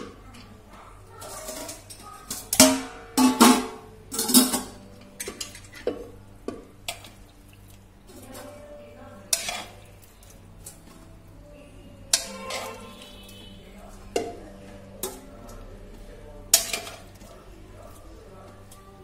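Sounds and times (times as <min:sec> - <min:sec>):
metal bowl clanking in sink: 0:01.2 - 0:07.2, 0:09.2 - 0:10.8, 0:12.1 - 0:13.5, 0:16.5 - 0:17.3.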